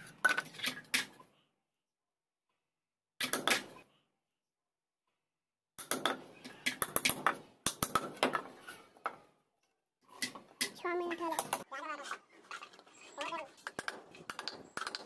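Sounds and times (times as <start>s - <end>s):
hammers driving nails into wood: 5.8s - 8.5s.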